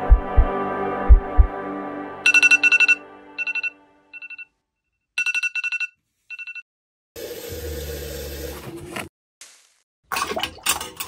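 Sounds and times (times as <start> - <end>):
phone alarm beeps: 2.3 - 4.5.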